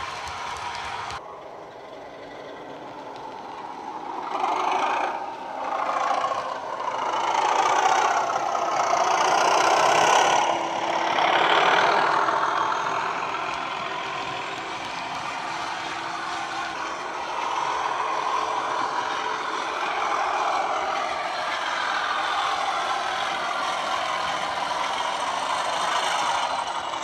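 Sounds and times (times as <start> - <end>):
diesel locomotive engine through small speaker: 0.0 - 27.0.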